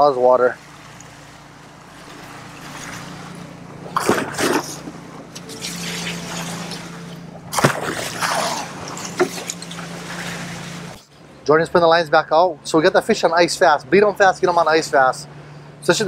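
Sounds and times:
boat engine humming: 0.0 - 16.0
water rushing along hull: 0.0 - 16.0
water sloshing from bucket: 0.3 - 11.1.

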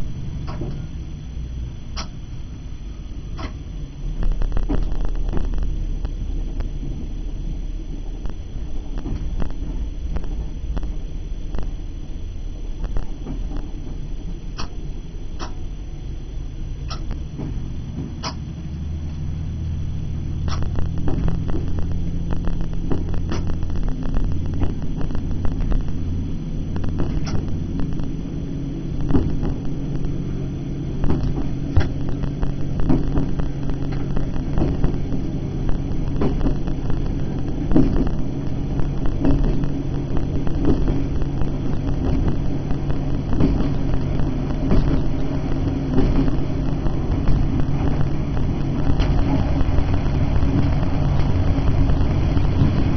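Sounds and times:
diesel train engine droning: 0.0 - 52.9
train wheels clicking over track: 45.8 - 47.9.

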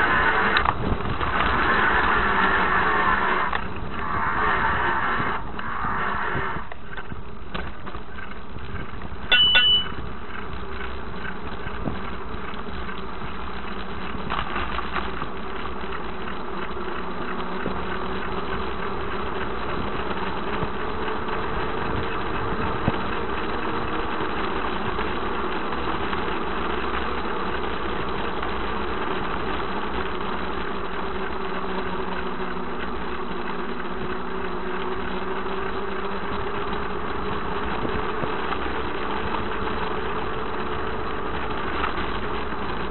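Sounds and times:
vehicle engine running: 0.0 - 42.9
short high beeps: 9.3 - 10.0.

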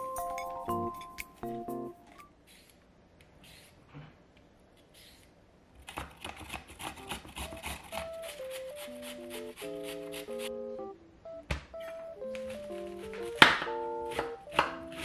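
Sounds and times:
vegetable peeler scraping: 2.4 - 2.8, 3.4 - 3.9, 4.8 - 5.3, 5.9 - 10.5.

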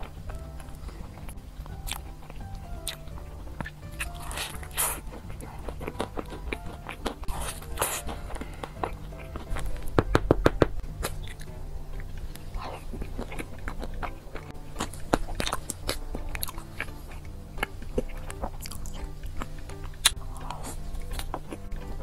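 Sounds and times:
background music: 0.0 - 22.0
crunchy bites and chewing: 0.0 - 22.0.

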